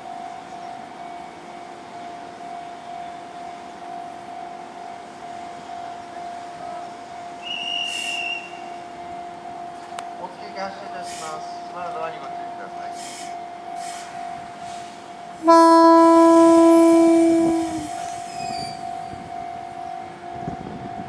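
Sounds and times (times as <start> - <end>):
electric train two-tone hum: 0.0 - 21.0
whistling hiss: 7.4 - 8.8, 17.4 - 19.2.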